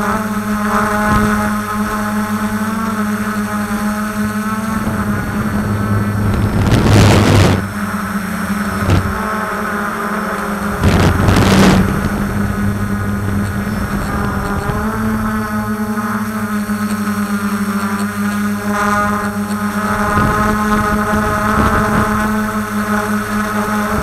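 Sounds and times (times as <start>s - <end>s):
drone motors whining: 0.0s - 24.0s
bursts of rushing noise: 3.2s - 16.7s.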